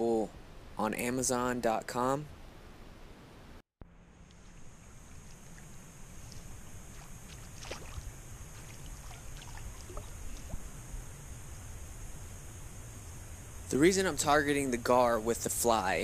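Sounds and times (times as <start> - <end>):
steady low rumble: 3.8 - 16.0
high hiss: 4.3 - 16.0
water lapping against hull: 6.8 - 10.7.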